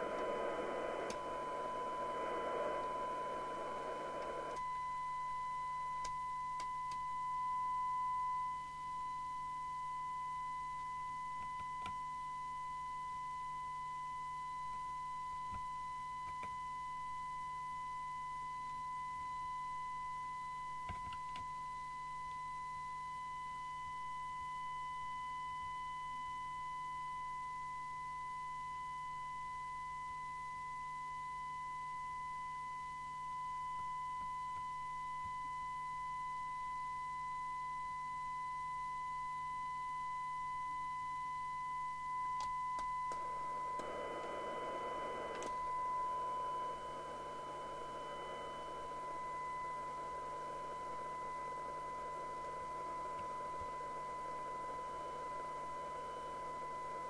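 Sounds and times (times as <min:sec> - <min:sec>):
radio hiss: 0:00.0 - 0:04.6, 0:43.2 - 0:57.0
clicks: 0:00.0 - 0:04.7, 0:42.4 - 0:45.8
steady test tone from radio speaker: 0:00.0 - 0:57.0.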